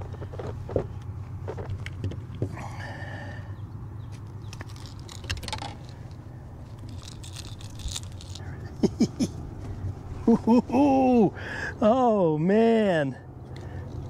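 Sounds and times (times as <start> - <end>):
steady low hum: 0.0 - 14.0
light metallic jangle: 4.7 - 8.5.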